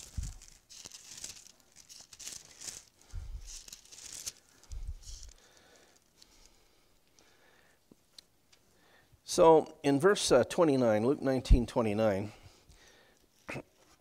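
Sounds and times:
book pages rustling: 0.0s - 6.6s.

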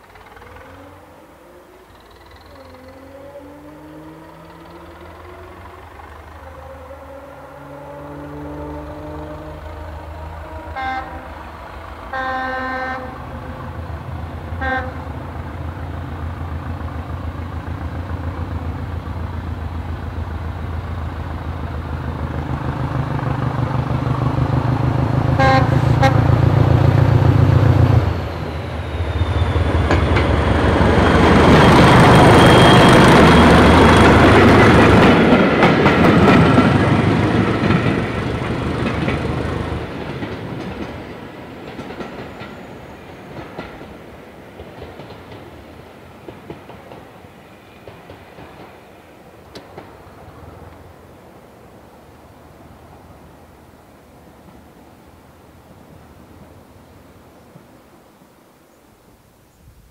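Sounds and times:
diesel locomotive engine: 0.0s - 59.8s
locomotive horn toots: 6.7s - 11.4s, 12.1s - 13.6s, 14.6s - 15.1s, 25.4s - 26.4s.

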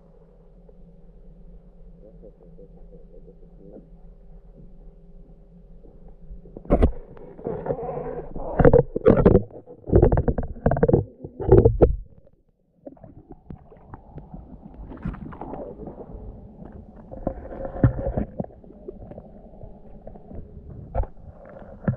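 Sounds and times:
muffled underwater knocks and scrapes: 5.8s - 21.9s.

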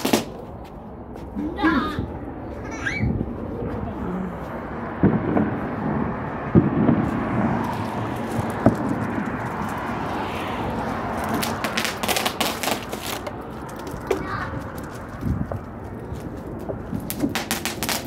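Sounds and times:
firecrackers popping: 0.0s - 0.4s, 5.0s - 18.0s
steady background noise: 0.0s - 18.0s.

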